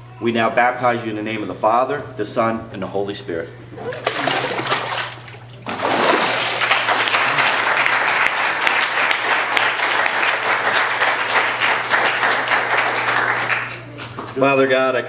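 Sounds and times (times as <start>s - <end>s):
water splashing in a tank: 3.8s - 7.4s
congregation clapping: 3.9s - 5.2s, 5.9s - 13.9s.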